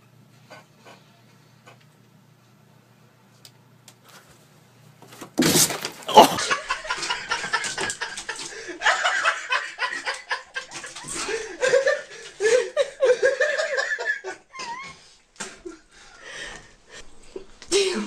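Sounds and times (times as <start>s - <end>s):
people laughing: 6.1s - 15.9s.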